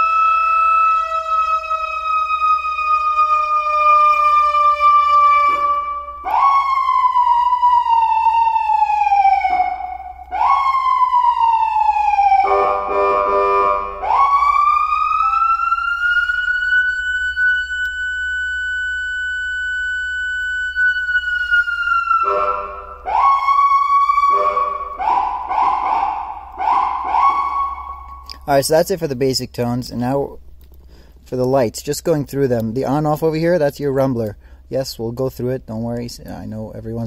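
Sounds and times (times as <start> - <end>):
electronic police siren: 0.0 - 28.4
harsh siren blast: 0.0 - 28.5.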